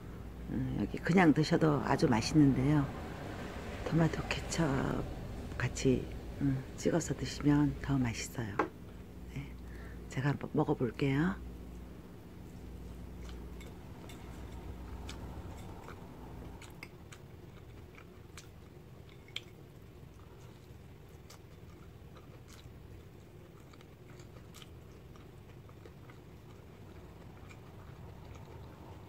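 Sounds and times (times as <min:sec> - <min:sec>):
person chewing: 0:11.6 - 0:29.0.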